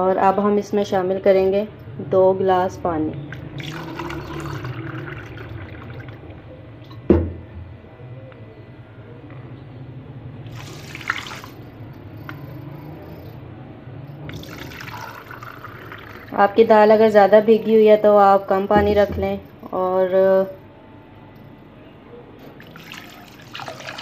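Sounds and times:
water pouring into a cup: 3.4 - 6.5, 10.5 - 11.6, 14.3 - 16.4, 22.5 - 24.0
water splashing into a pot: 10.5 - 11.6, 22.6 - 24.0.

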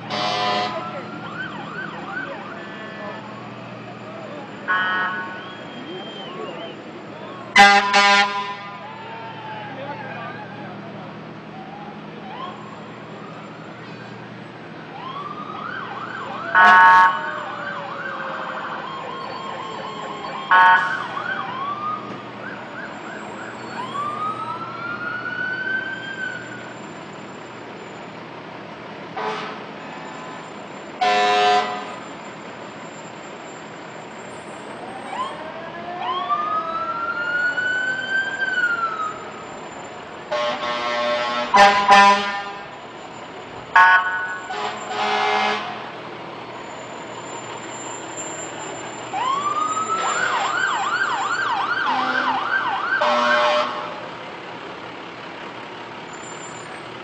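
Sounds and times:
air horn blasts: 0.0 - 1.0, 4.7 - 5.6, 7.5 - 8.8, 16.5 - 17.3, 29.2 - 29.7, 31.0 - 32.0, 40.3 - 42.7, 43.7 - 45.9, 53.0 - 54.0
fire truck sirens wailing: 0.0 - 57.0.

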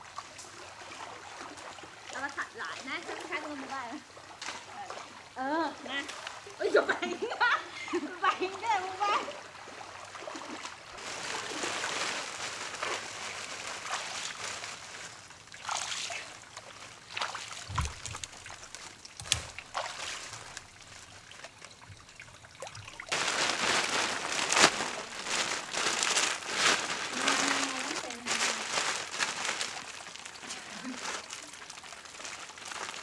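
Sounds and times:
water splashing and trickling: 0.0 - 33.0
plastic tarp rustling: 10.9 - 21.7, 22.7 - 33.0.

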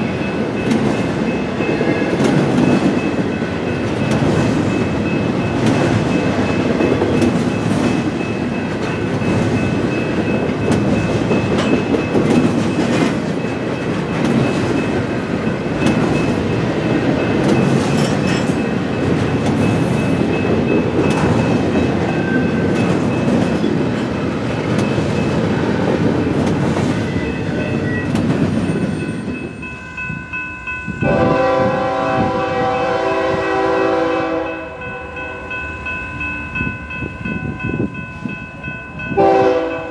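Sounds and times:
freight train wheels rumbling on rail: 0.0 - 39.9
locomotive air horn: 31.0 - 35.1, 39.2 - 39.9.

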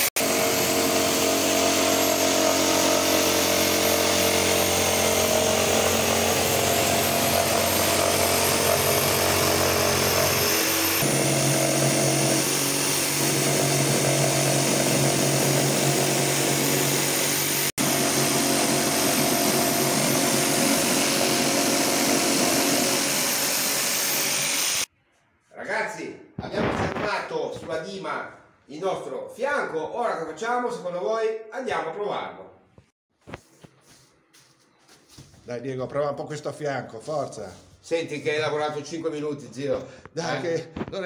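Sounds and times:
electric jigsaw cutting wood: 0.0 - 24.9.

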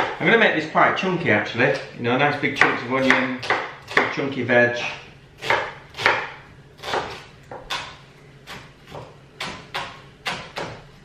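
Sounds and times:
knife chopping on wooden board: 0.0 - 0.2, 2.6 - 4.2, 5.4 - 10.9.

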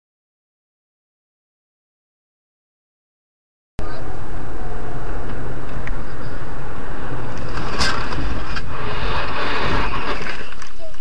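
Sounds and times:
car road and engine rumble: 3.8 - 11.0.

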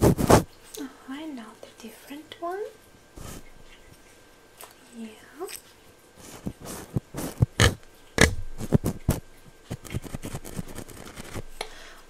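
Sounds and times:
scratchy swipes on microphone: 0.0 - 0.5, 6.2 - 11.5.

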